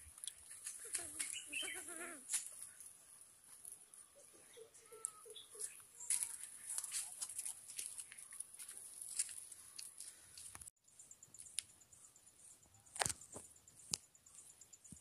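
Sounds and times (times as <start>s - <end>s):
insects chirping: 10.8s - 15.0s.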